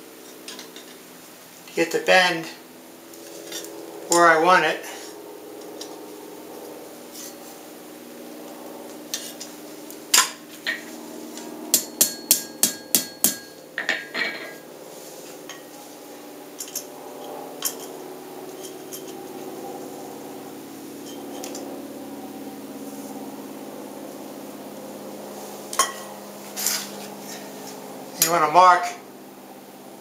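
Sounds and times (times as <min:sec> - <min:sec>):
hammer striking steel on anvil: 0:11.7 - 0:14.6.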